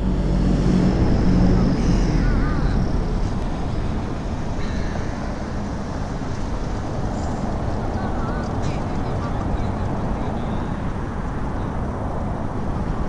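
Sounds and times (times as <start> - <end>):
deep low rumble: 0.0 - 10.4.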